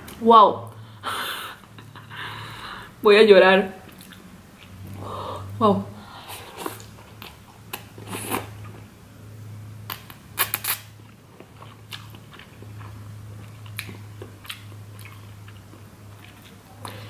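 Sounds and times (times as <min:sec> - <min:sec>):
low steady hum: 0:00.0 - 0:17.0
slurping and chewing noodles: 0:06.2 - 0:08.8.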